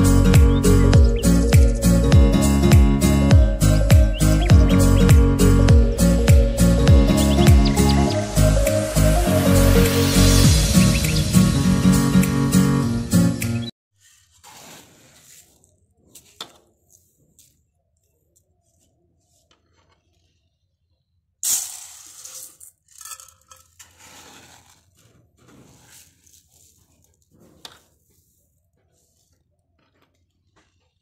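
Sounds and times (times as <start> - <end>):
rice grains pouring: 14.0 - 15.7, 21.4 - 25.0, 25.6 - 27.3
metal tin clinking on pot: 22.4 - 23.9.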